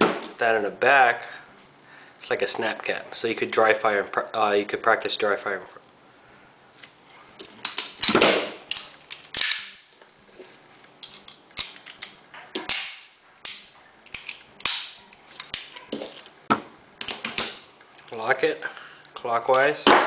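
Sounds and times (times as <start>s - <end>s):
pistol hammer dropping: 7.6s - 9.9s, 11.0s - 17.6s.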